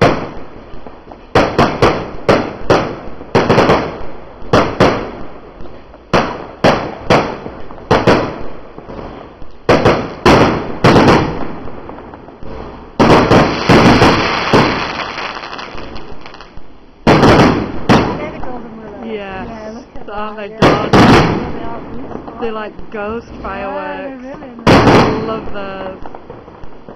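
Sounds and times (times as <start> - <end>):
fireworks bursting in sharp pops: 0.0 - 26.9.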